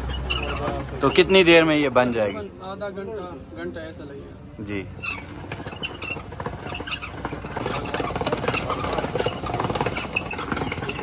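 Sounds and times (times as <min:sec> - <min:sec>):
ice cream churn gear rattling: 0:00.0 - 0:02.5, 0:04.7 - 0:11.0.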